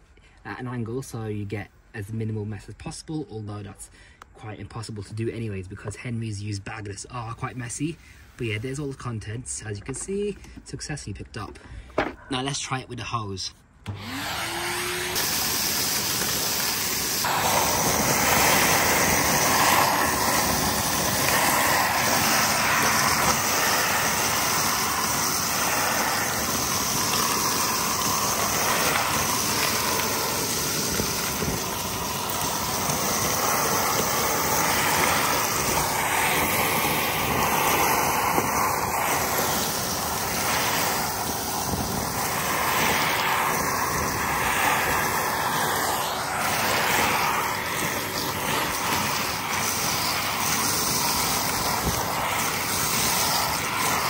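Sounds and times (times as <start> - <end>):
vacuum cleaner running: 13.8 - 54.0
hose sucking up bark chips: 13.9 - 54.0.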